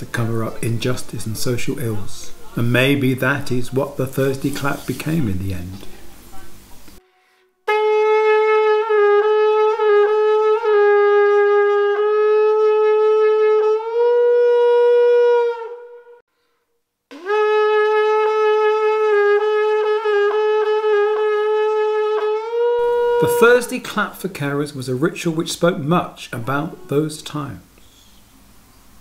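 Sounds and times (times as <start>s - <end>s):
wind instrument slow melody: 7.0s - 16.3s, 17.1s - 23.9s.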